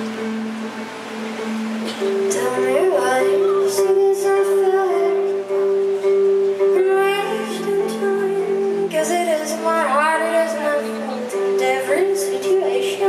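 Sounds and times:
woman singing: 0:02.2 - 0:05.7, 0:06.6 - 0:13.0.

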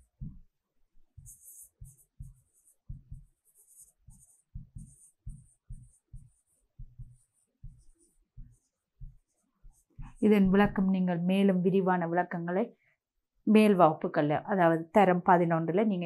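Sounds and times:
pen scratching on paper: 0:01.2 - 0:10.4.

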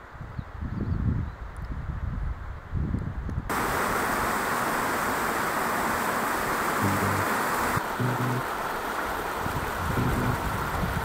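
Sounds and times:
stream rushing over rocks: 0:03.5 - 0:11.0
low sustained music notes: 0:06.8 - 0:07.3, 0:08.0 - 0:08.5.

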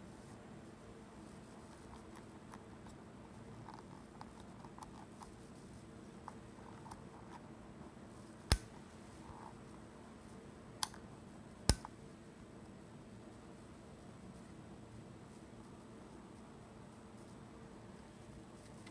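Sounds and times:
sharp switch clicks: 0:08.5 - 0:08.7, 0:11.7 - 0:11.9.

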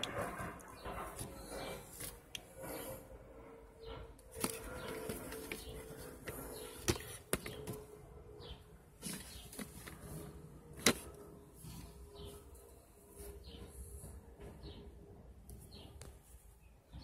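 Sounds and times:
box handling taps and rustles: 0:04.4 - 0:07.8.

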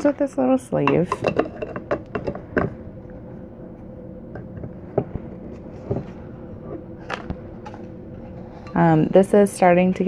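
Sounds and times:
faint hum: 0:00.0 - 0:10.0
glass tumbler ticks and knocks: 0:00.9 - 0:02.7.

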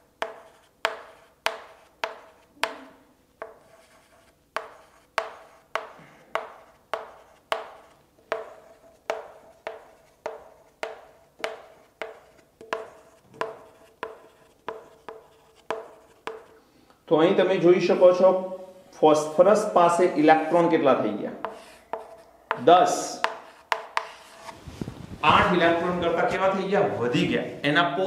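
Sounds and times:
chalk tapping on chalkboard: 0:00.1 - 0:16.6, 0:21.4 - 0:24.6.

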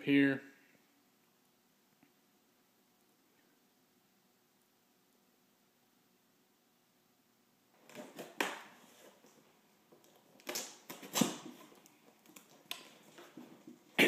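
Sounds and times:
knife cutting cardboard box tape: 0:10.4 - 0:11.8.

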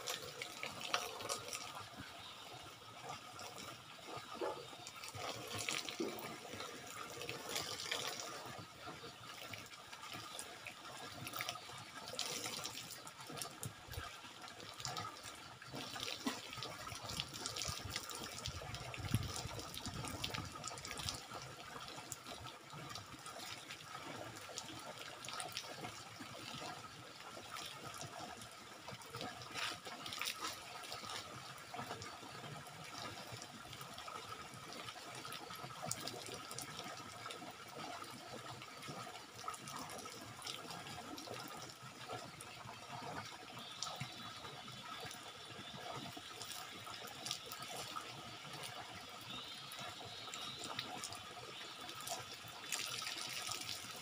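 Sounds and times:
shower water pouring and splashing: 0:00.0 - 0:02.1, 0:03.1 - 0:10.7, 0:11.3 - 0:37.5, 0:51.9 - 0:54.0.

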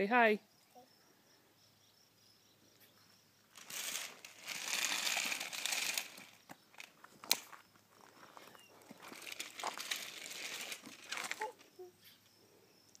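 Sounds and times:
rustling crinkling noise: 0:03.5 - 0:11.8.

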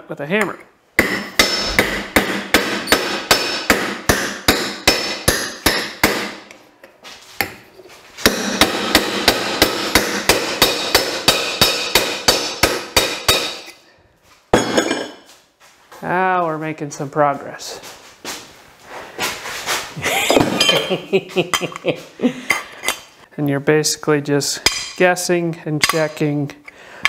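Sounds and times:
hammer pounding metal tube: 0:01.0 - 0:06.5, 0:08.2 - 0:13.8.

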